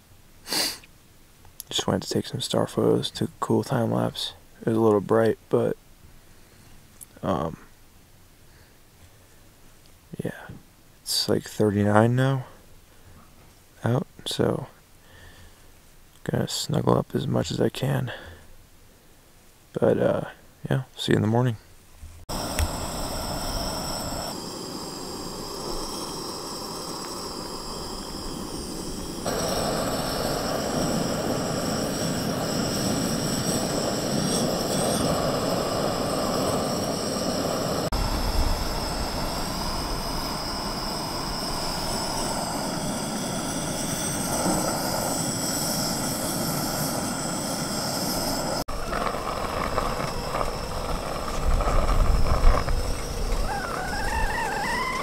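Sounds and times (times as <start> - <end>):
gas camp stove roaring: 22.3 - 55.0.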